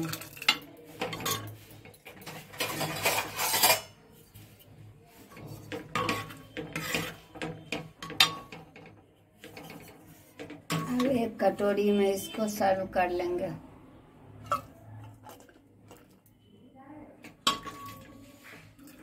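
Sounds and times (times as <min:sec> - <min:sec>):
metal ladle scraping a pot: 0:00.0 - 0:12.4, 0:17.3 - 0:19.0.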